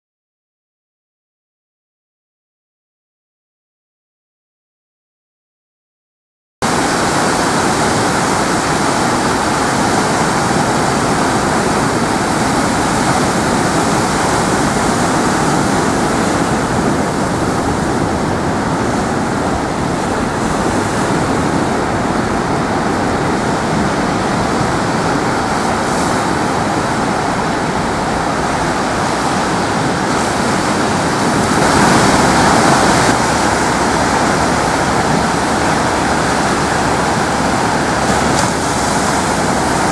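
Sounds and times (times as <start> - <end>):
ocean surf breaking: 6.6 - 39.9.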